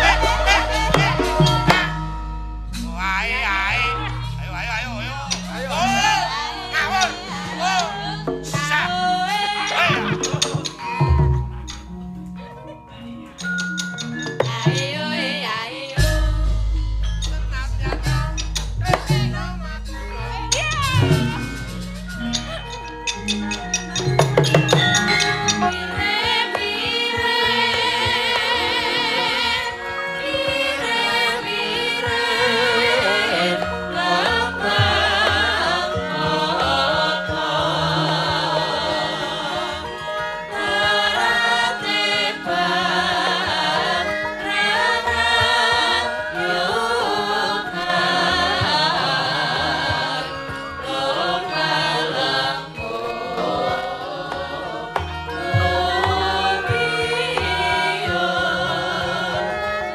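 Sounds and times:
metallophone and gong tones: 0.0 - 58.2
singers in wavering line: 0.0 - 59.9.

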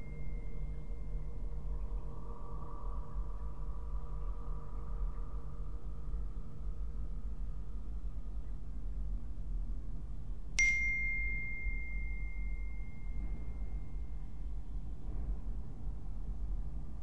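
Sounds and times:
steady low rumble: 0.0 - 17.0
bell-like ding: 10.6 - 14.2.

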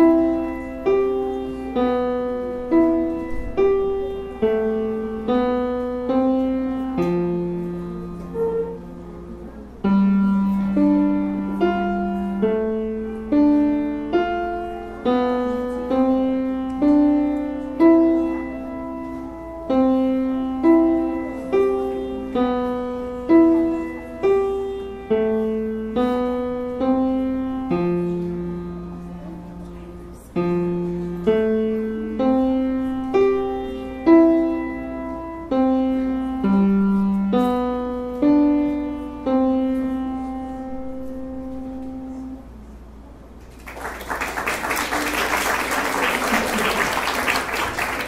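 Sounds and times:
slow grand piano melody: 0.0 - 42.8
audience applause: 43.6 - 48.0.

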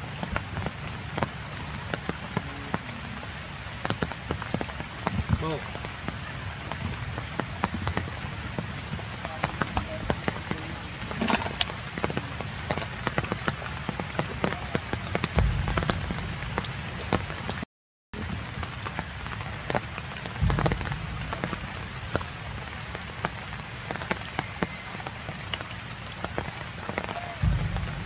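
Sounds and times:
raindrops ticking close by: 0.0 - 17.6, 18.2 - 28.0
rain pattering: 0.0 - 28.0
low rumble: 14.5 - 17.6, 20.4 - 24.1, 27.4 - 28.0.

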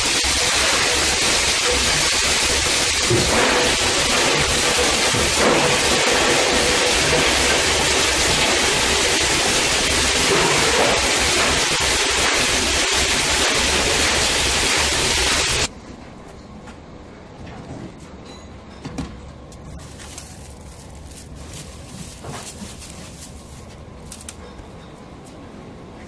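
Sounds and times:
grinder running loud: 0.0 - 15.7.

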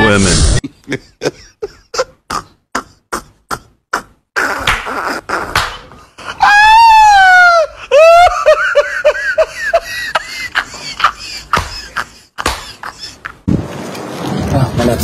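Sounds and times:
person laughing: 0.5 - 5.5, 7.4 - 13.5
person shrieking: 6.3 - 8.3.

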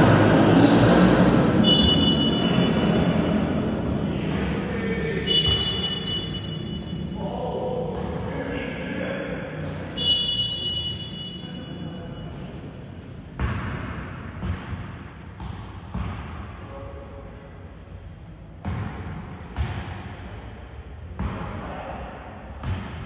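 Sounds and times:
referee whistle long blast: 1.6 - 2.6.

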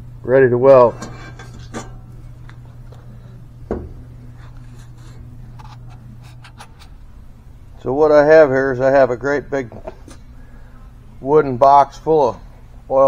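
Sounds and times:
steady low hum: 0.0 - 13.0
metal part handling noise: 0.9 - 2.0
soft knock: 3.7 - 4.0.

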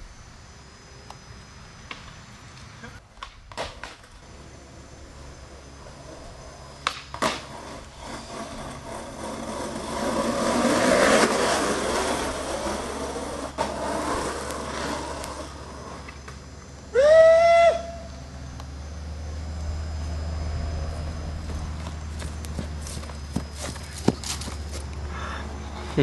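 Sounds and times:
skateboard wheels rolling on asphalt: 0.9 - 26.0
skateboard clacks: 6.8 - 16.4.

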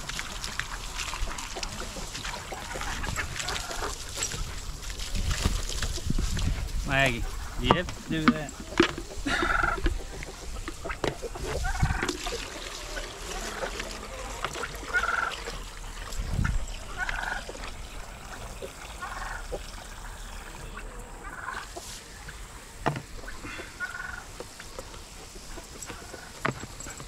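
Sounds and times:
fowl calling: 1.1 - 4.4, 7.2 - 15.6, 16.9 - 17.5, 18.9 - 19.6, 20.4 - 22.6, 23.2 - 24.5.

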